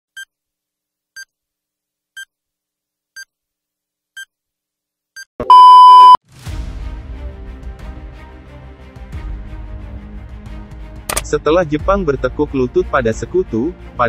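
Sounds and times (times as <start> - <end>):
short electronic beeps: 5.4 - 6.2.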